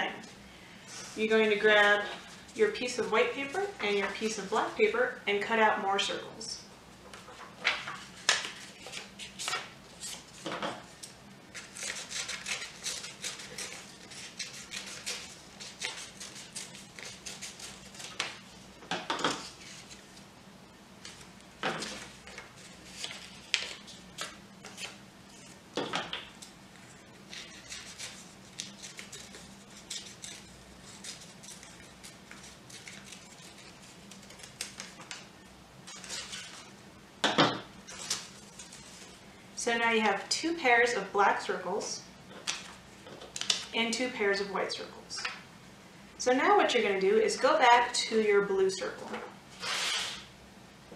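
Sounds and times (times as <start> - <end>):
scissors snipping paper: 11.5 - 18.3, 27.3 - 35.1
paper rustling and crinkling: 19.3 - 20.2, 21.0 - 25.6, 26.8 - 35.3, 35.9 - 36.7, 37.9 - 39.2.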